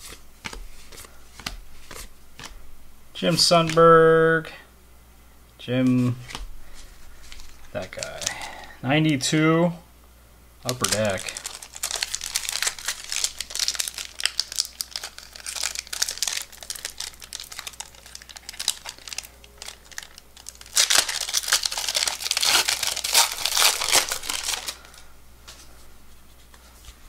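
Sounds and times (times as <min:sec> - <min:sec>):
foil wrapper crinkling: 0:06.3 - 0:08.8, 0:10.7 - 0:25.0.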